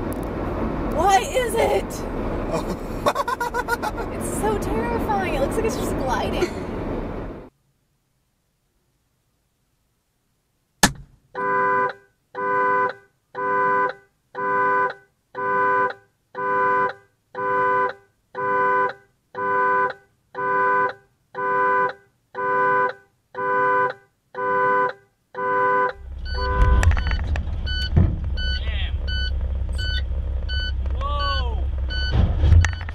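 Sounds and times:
car horn honking: 0:11.3 - 0:27.1.

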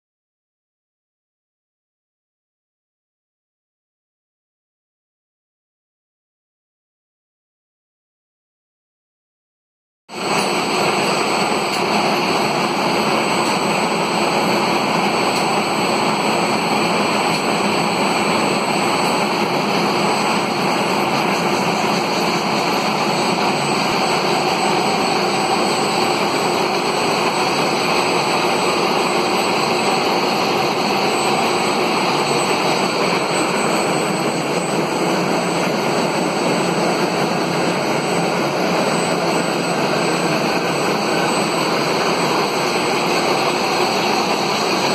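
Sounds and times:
loud machine noise of motors: 0:10.1 - 0:44.9.

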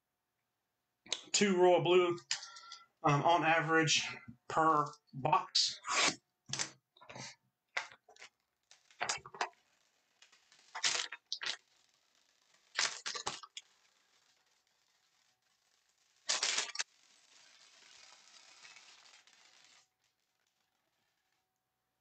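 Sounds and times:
cardboard tearing and crackling: 0:10.2 - 0:20.7.

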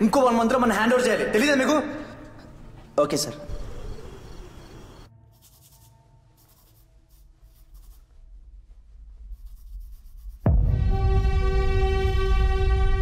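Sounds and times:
pen scratching on paper: 0:05.3 - 0:08.1, 0:09.3 - 0:10.4.

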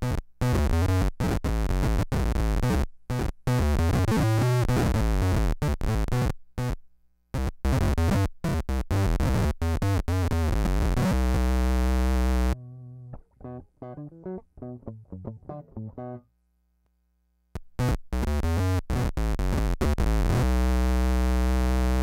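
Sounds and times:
clean picked guitar line: 0:12.3 - 0:16.3.

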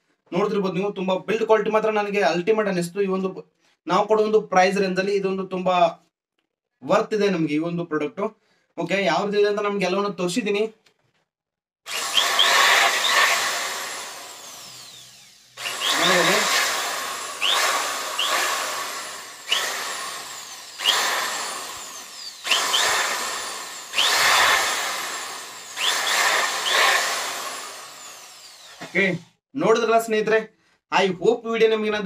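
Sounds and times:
electric drill whining: 0:11.9 - 0:29.2.

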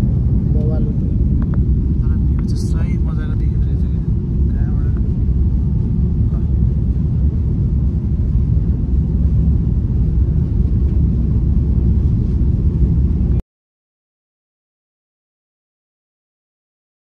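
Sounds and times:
vehicle rumbling: 0:00.0 - 0:13.4.

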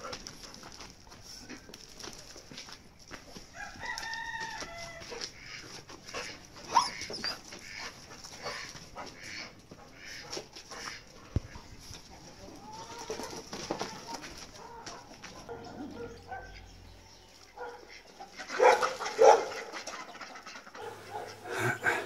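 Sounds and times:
rooster crowing: 0:03.5 - 0:05.1.

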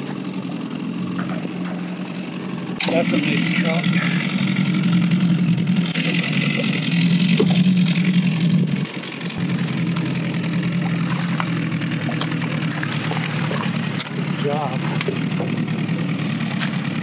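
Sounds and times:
outboard motor humming: 0:00.0 - 0:17.0
fish splashing in water: 0:09.4 - 0:17.0.

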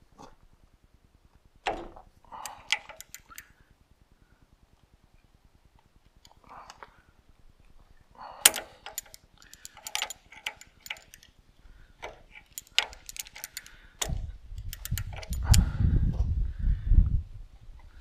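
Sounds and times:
metallic clicks and clinks: 0:02.4 - 0:03.6, 0:08.4 - 0:11.4, 0:12.0 - 0:15.7.

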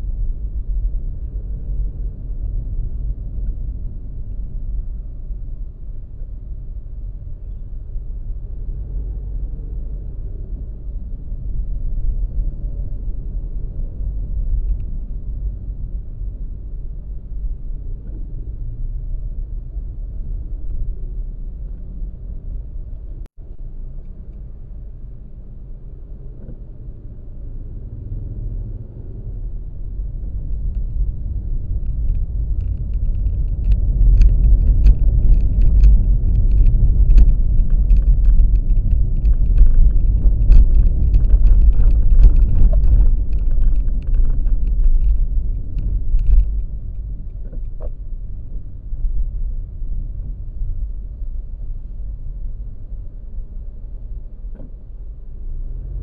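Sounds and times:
road travel rumble: 0:00.0 - 0:56.0
wind noise on microphone: 0:00.0 - 0:56.0
scattered crackling: 0:31.7 - 0:46.7.

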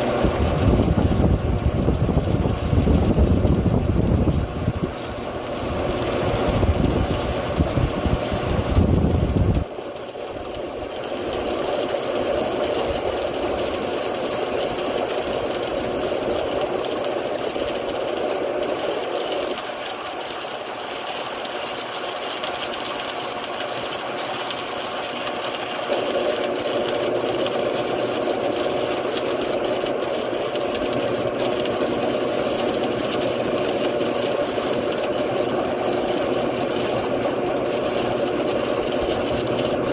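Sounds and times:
arc welder humming: 0:00.0 - 0:39.9
wind buffeting microphone: 0:00.3 - 0:05.0, 0:06.4 - 0:09.6.

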